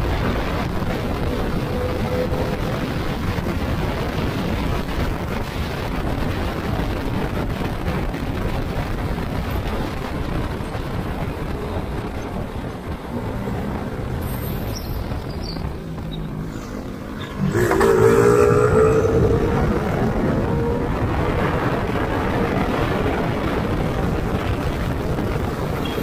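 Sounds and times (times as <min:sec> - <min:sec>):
vehicle engine and road noise: 0:00.0 - 0:26.0.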